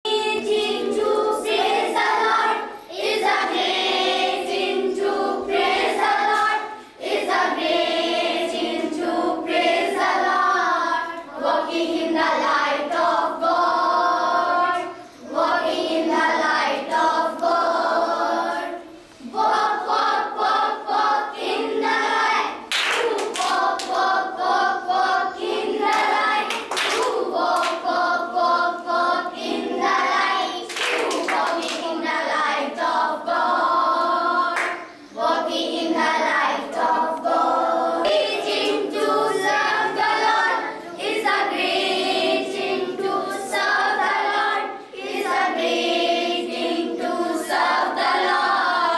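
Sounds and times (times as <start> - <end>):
children singing: 0.0 - 48.9
hand claps: 6.2 - 6.6, 22.7 - 24.1, 25.8 - 27.9, 30.6 - 32.0, 34.6 - 34.9.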